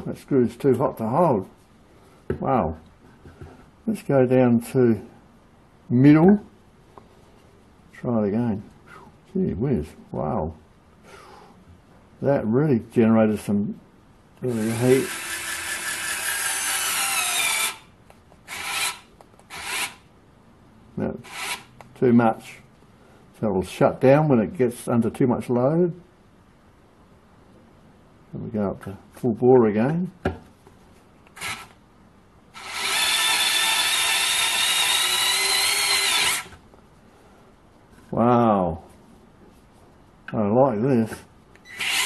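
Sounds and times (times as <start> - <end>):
electric screwdriver whine: 14.6 - 17.9, 18.5 - 20.0, 32.6 - 36.6, 41.6 - 42.0.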